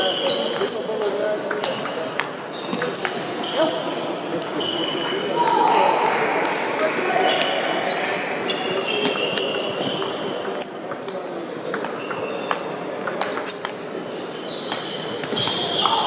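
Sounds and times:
murmur of voices: 0.0 - 16.0
shoes squeaking on floor: 2.5 - 5.2, 7.2 - 12.8, 13.4 - 16.0.

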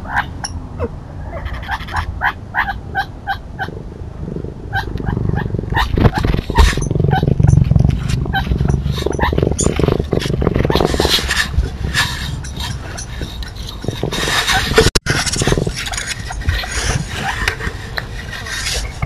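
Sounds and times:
scraping and bumping on microphone: 4.2 - 19.0.

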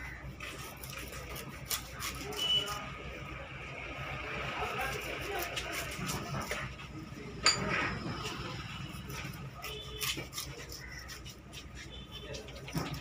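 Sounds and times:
knife chopping fish on wood: 9.2 - 13.0.

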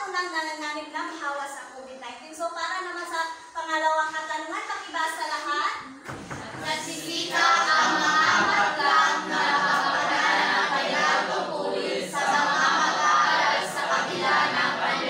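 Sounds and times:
students reciting in unison: 6.1 - 15.0.

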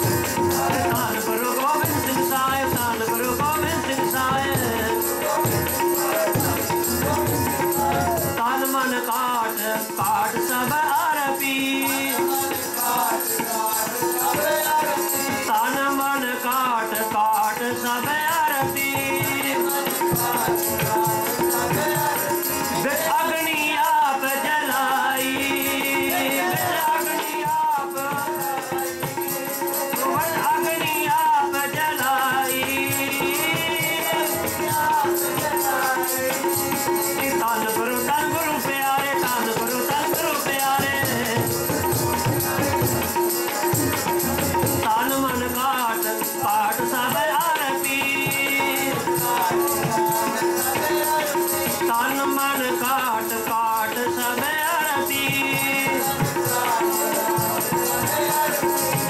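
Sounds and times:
harmonium chords: 0.0 - 59.0
man singing a hymn: 0.0 - 59.0
shaken percussion jingle: 0.0 - 59.0
tabla drumming: 0.0 - 59.0.

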